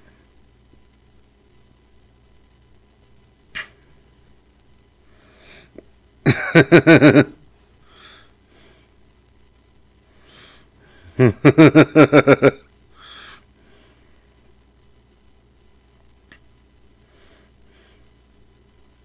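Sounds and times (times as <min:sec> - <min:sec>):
man laughing: 0:06.3 - 0:07.4, 0:11.1 - 0:12.7.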